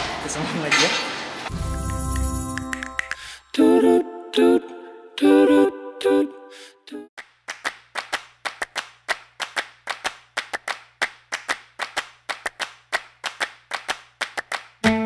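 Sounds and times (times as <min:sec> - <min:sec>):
rhythmic hand clapping: 0:01.9 - 0:03.3, 0:07.2 - 0:15.0.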